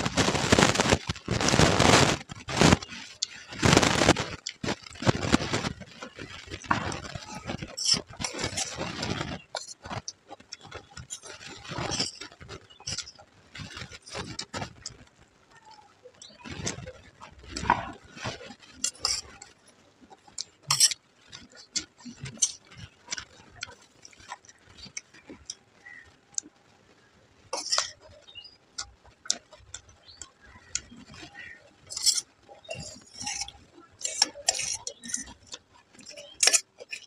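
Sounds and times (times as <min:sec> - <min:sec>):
crisp chewing of puffed rice: 0:00.0 - 0:37.0
spoon scraping on steel plate: 0:30.8 - 0:37.0.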